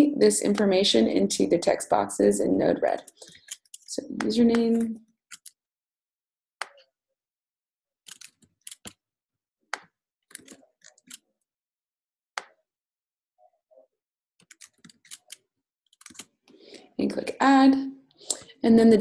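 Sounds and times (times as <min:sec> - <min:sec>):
computer mouse clicks: 0:03.0 - 0:05.6, 0:08.1 - 0:09.0, 0:14.4 - 0:16.3.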